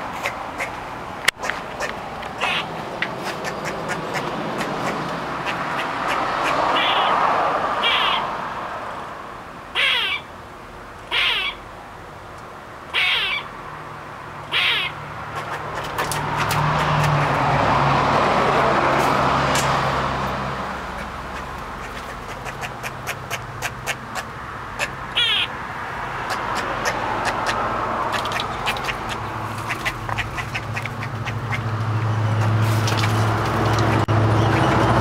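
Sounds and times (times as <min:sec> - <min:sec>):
squirrel alarm calls: 0:01.7 - 0:07.2, 0:07.8 - 0:08.3, 0:09.8 - 0:10.3, 0:11.1 - 0:11.6, 0:12.9 - 0:13.5, 0:14.5 - 0:16.6, 0:21.0 - 0:25.6, 0:26.3 - 0:31.7.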